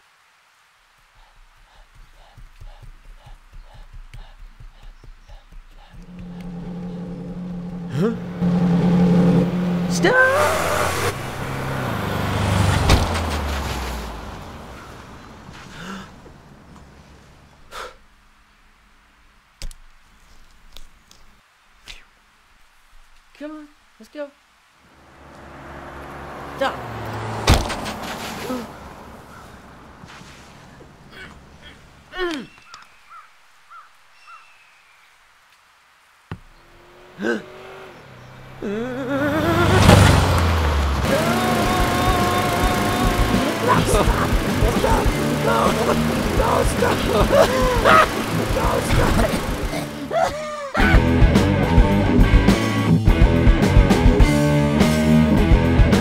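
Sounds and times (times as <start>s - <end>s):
rush of noise: 5.8s - 16.4s, 38.6s - 54.3s
low rumble: 6.0s - 9.9s
wavering rising whine: 6.0s - 12.3s, 40.4s - 50.1s
cartoon car engine winding down: 6.1s - 15.0s, 38.5s - 52.2s
loud thud: 12.8s - 13.5s, 27.4s - 28.1s.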